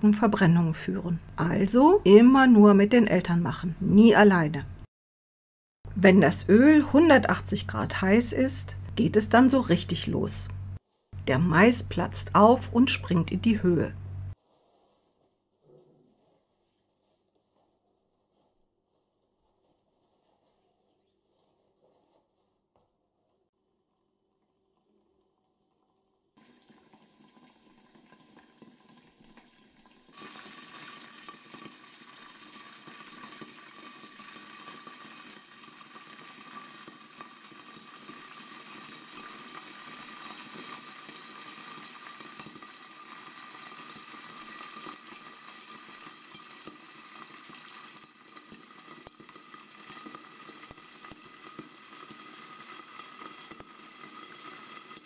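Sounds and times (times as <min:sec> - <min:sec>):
hot oil sizzling: 0:26.4 - 0:55.0.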